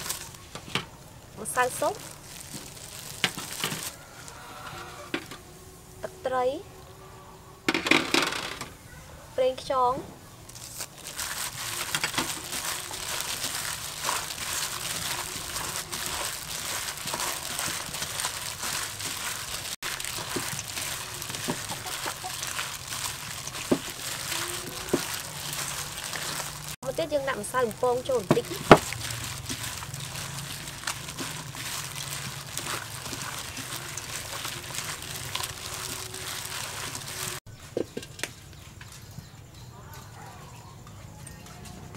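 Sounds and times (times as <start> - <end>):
plastic glove crinkling: 0.0 - 4.5, 10.4 - 37.5
wet rustling of shrimp: 0.0 - 4.5, 10.5 - 37.5.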